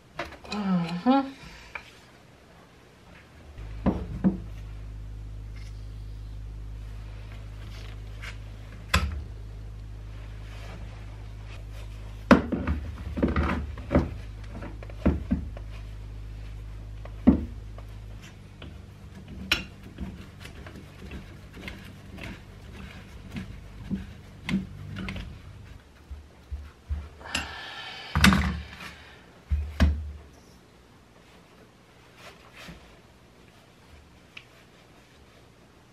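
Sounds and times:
steady low hum: 0.0 - 35.9
scraping rasp: 18.2 - 25.8.

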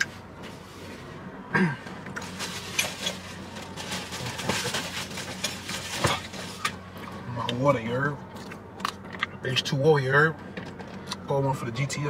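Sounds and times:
person rummaging clicks and rustles: 2.1 - 6.8.

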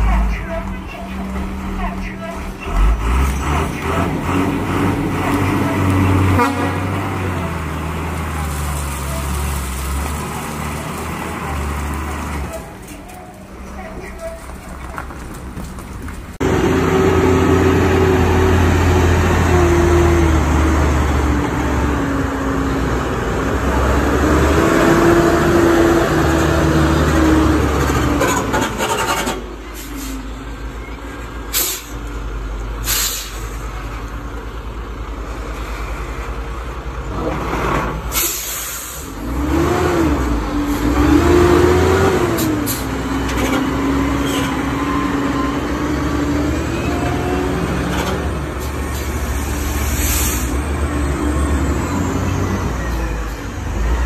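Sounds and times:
diesel truck engines under load: 0.0 - 54.0
air brake hisses: 31.5 - 32.0, 32.8 - 33.6, 38.1 - 39.2, 49.6 - 50.6.

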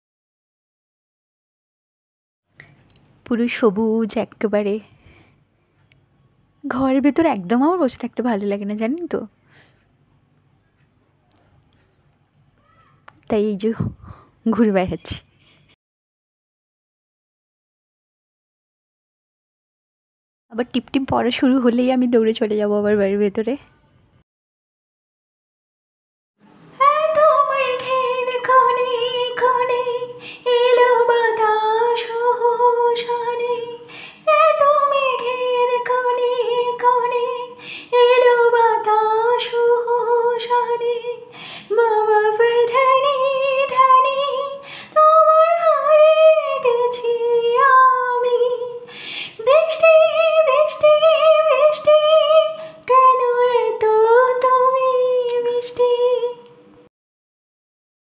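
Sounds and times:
woman singing unaccompanied: 26.8 - 56.6.

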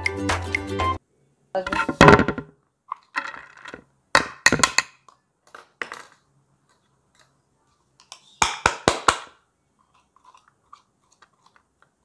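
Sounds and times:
plastic parts knocking on plate: 1.7 - 6.2.

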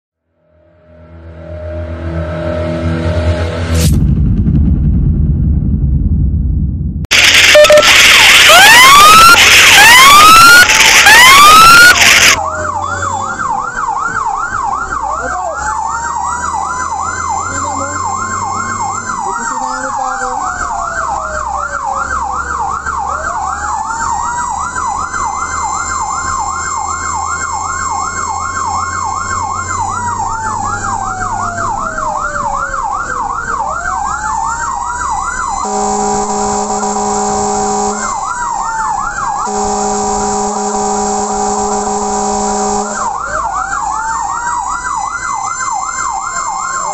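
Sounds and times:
long steady horn blasts: 7.1 - 12.4, 35.6 - 38.4, 39.4 - 43.2
fast yelp siren: 7.1 - 46.9
slow wailing siren: 7.1 - 46.9.

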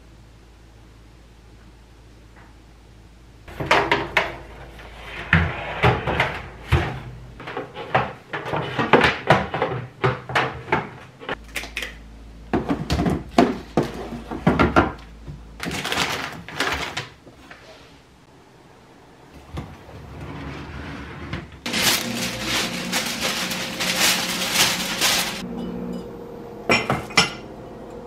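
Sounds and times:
plastic packets rustling: 15.6 - 17.2, 21.7 - 25.4.

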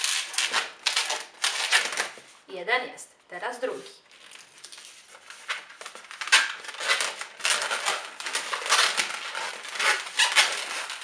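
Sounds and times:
balloon rubber squeaking: 0.0 - 2.2, 6.1 - 11.0.

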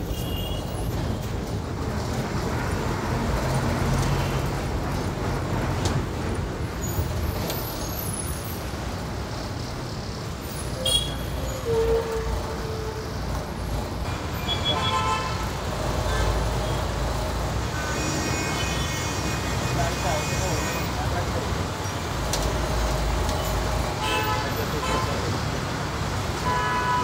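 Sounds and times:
bus engine and road noise: 0.0 - 27.0
bus horn toot: 10.8 - 13.1, 14.1 - 15.5, 17.7 - 21.0, 24.0 - 25.2, 26.4 - 27.0.

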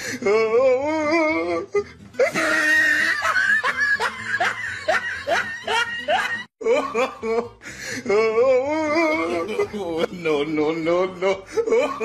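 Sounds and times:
hearty wheezy laughter: 1.6 - 10.4, 11.2 - 12.0.

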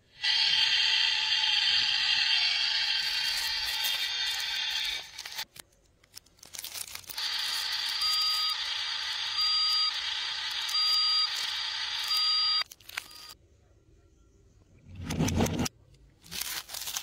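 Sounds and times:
plastic crinkling: 5.1 - 8.3, 16.2 - 17.0
two-tone electronic alarm beep: 7.8 - 13.4.

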